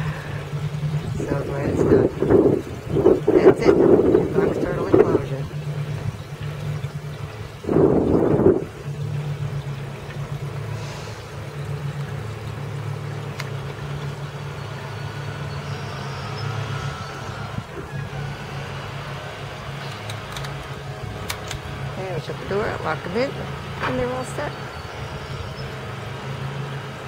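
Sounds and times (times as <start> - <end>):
power equipment engine drone: 0.0 - 27.0
door latch clicks: 19.9 - 21.6.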